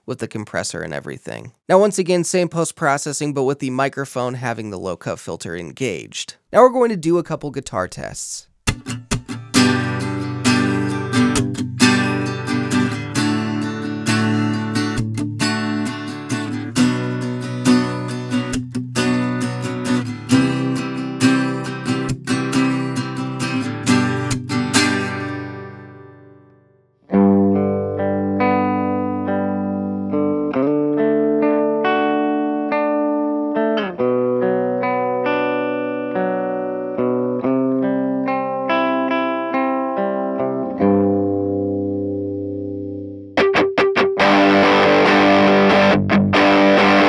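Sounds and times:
acoustic guitar strumming chords: 8.7 - 47.0.

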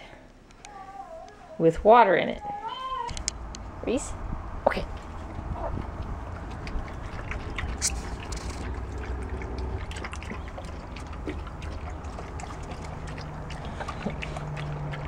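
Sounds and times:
low steady rumble: 0.0 - 15.0
puppy lapping water: 5.0 - 15.0.

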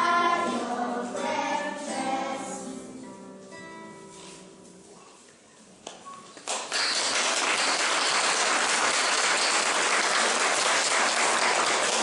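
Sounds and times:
audience applauding: 6.4 - 12.0.

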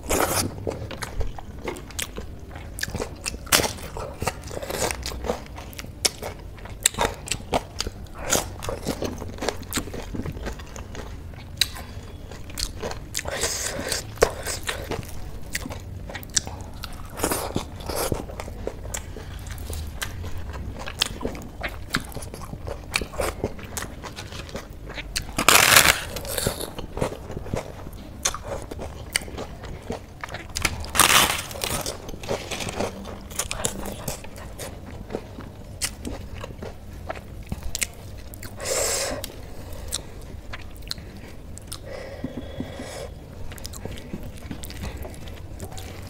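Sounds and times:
person chewing: 0.0 - 46.0
crunchy bites: 19.0 - 27.6, 30.2 - 34.2.

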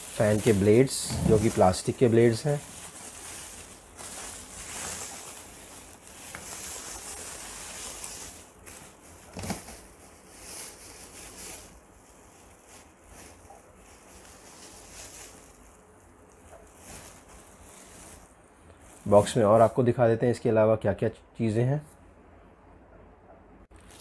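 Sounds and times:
bubble wrap rustling: 0.0 - 19.9, 23.7 - 24.0.

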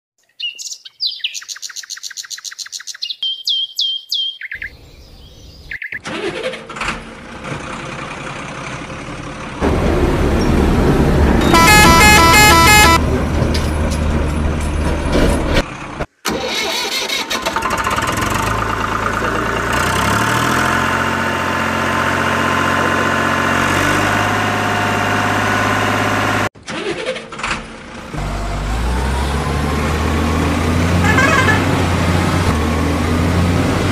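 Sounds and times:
engine revving through gears: 6.0 - 33.9
truck engine running: 6.2 - 16.7, 17.4 - 33.9
horn honking: 11.4 - 13.1, 30.8 - 32.0.

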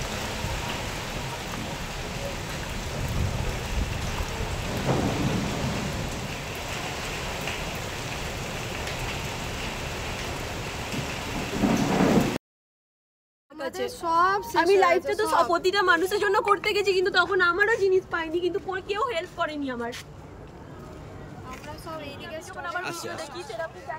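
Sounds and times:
heavy rain: 0.0 - 12.4
storm wind: 0.0 - 12.4.

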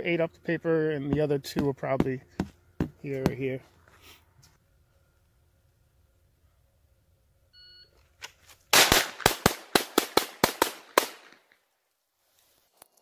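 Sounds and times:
rapid pistol shots: 8.7 - 11.4.

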